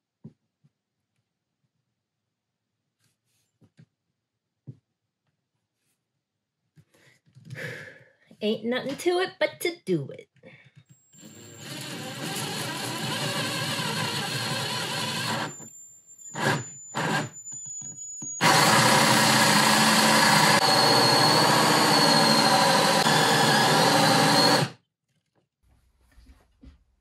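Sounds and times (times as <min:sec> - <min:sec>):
jigsaw cutting wood: 0:11.2 - 0:15.7, 0:16.4 - 0:17.4, 0:18.4 - 0:24.8.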